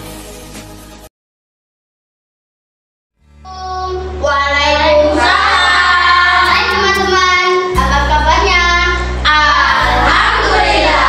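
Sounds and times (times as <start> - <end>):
musical backing track with bass: 0.0 - 1.1, 3.2 - 11.0
children singing: 4.2 - 11.0.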